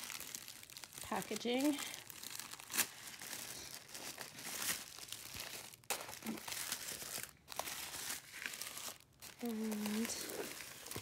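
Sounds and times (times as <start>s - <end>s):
tissue paper crinkling: 0.0s - 11.0s.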